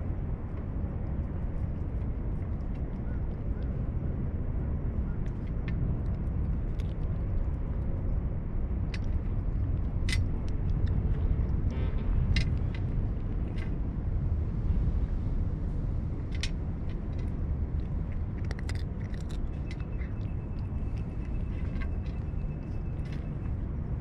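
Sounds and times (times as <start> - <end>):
steady low rumble: 0.0 - 24.0
cat crunching dry treats: 5.3 - 7.5, 16.3 - 24.0.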